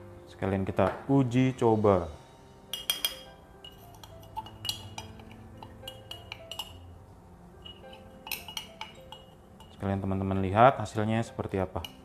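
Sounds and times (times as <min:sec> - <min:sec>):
jar clinking against metal sieve: 0:02.8 - 0:06.8, 0:07.6 - 0:10.0.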